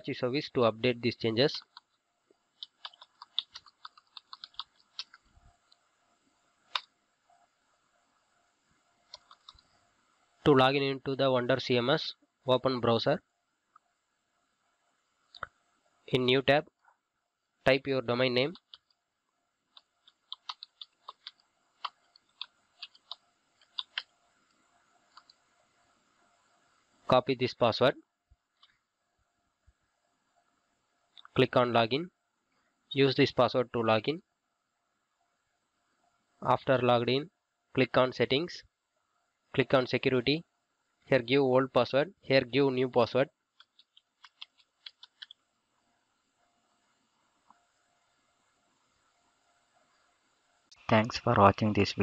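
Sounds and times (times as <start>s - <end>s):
computer keyboard typing: 1.4s - 1.9s, 2.6s - 5.2s, 9.1s - 9.6s, 18.4s - 18.9s, 19.7s - 24.2s, 43.6s - 45.4s.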